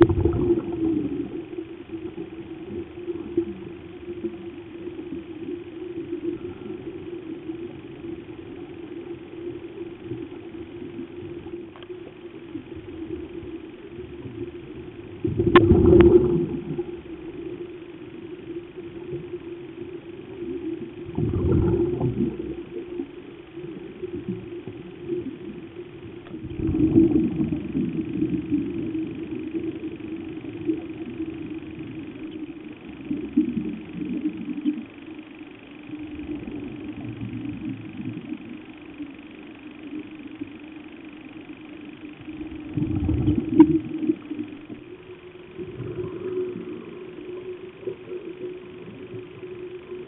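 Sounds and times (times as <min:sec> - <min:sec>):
scuba exhalation bubbles: 0:00.0 - 0:01.3, 0:15.3 - 0:16.9, 0:21.1 - 0:22.7, 0:26.4 - 0:28.9, 0:42.7 - 0:44.2
low underwater hum: 0:00.0 - 0:50.0.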